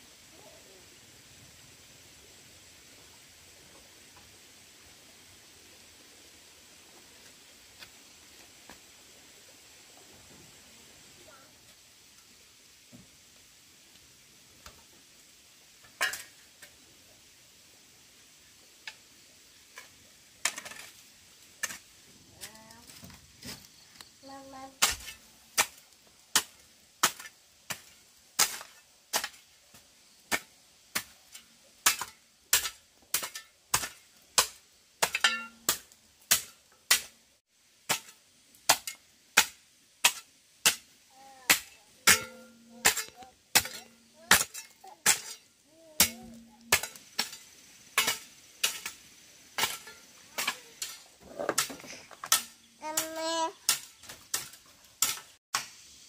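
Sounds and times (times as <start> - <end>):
sharp tool strikes: 41.5 - 45.4, 46.0 - 47.4, 49.6 - 55.7.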